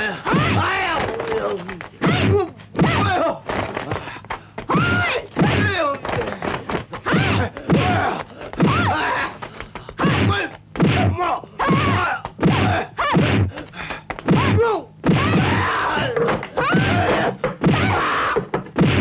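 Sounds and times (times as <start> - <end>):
fighters yelling: 0.0 - 3.4, 4.7 - 6.1, 7.0 - 13.6, 14.3 - 18.4
punch impact effects: 10.0 - 13.6, 18.7 - 19.0.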